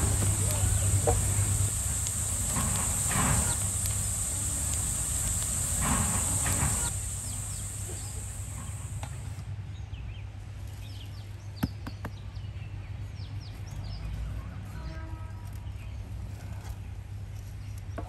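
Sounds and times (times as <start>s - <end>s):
high hiss: 0.0s - 9.4s
small birds chirping: 0.0s - 9.4s
outdoor background noise: 0.0s - 18.0s.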